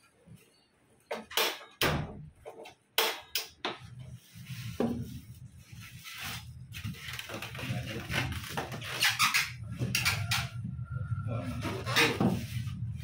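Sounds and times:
plastic bag rustling: 4.1s - 9.0s.

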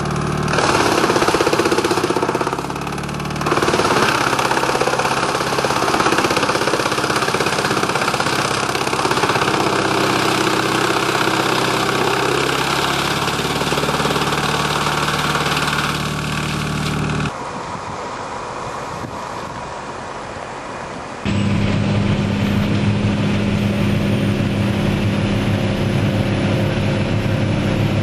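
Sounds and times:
wood chips blowing from chute: 0.0s - 17.6s
tractor engine running: 0.0s - 20.4s, 21.2s - 28.0s.

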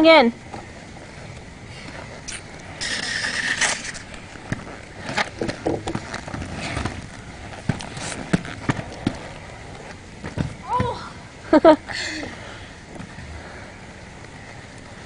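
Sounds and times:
skate wheels scraping concrete: 0.4s - 11.0s
skates clacking on pavement: 2.7s - 11.0s.

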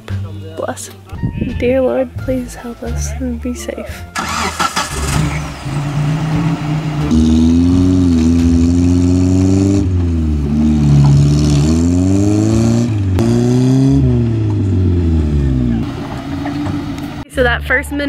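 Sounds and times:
engines revving under load: 4.2s - 17.3s.

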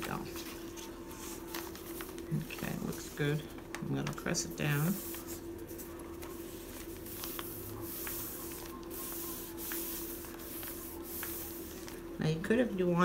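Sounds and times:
hands rubbing paper: 4.3s - 12.0s.

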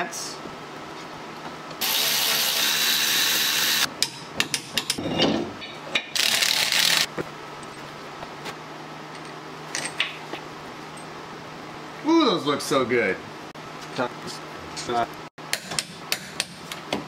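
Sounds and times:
cordless power tool running: 1.8s - 3.9s.

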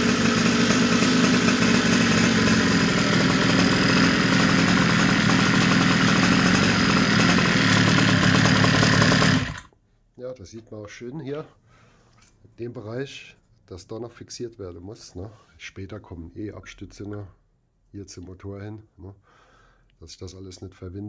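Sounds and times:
two-stroke engine idling: 0.0s - 9.7s.

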